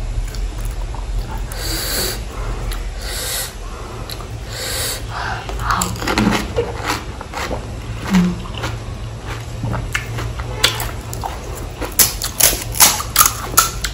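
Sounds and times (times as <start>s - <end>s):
crunching and chewing: 0.2s - 1.6s, 5.5s - 13.9s
hissing sucking breaths: 1.5s - 5.6s.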